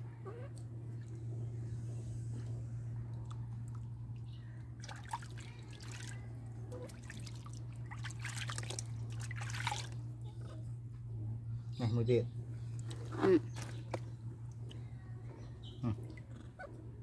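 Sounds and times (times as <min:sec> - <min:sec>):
steady low hum: 0:00.0 - 0:17.0
water splashing in plastic basin: 0:04.8 - 0:10.0, 0:12.8 - 0:14.1.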